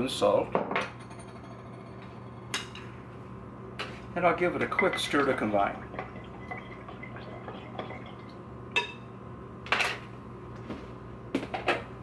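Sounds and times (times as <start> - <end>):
spoon stirring liquid in bowl: 4.6 - 8.2.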